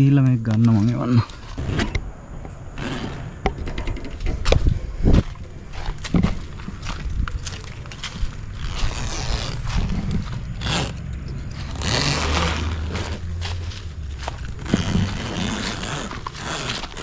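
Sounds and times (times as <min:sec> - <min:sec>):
zipper being pulled open: 0:02.7 - 0:03.5, 0:07.5 - 0:17.0
fabric scraping and rustling: 0:02.7 - 0:17.0.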